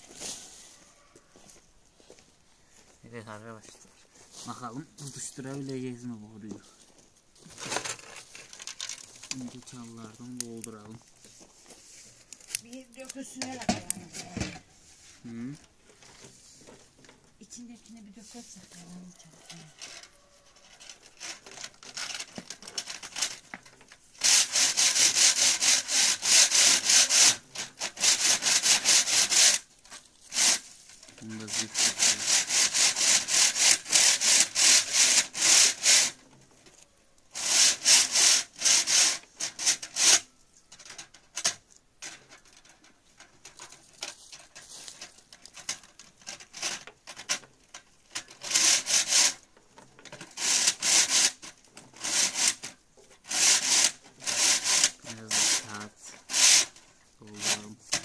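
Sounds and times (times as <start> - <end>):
rapid rhythmic scraping: 24.2 - 29.7, 30.3 - 36.2, 37.3 - 40.2, 48.4 - 49.4, 50.3 - 58.0.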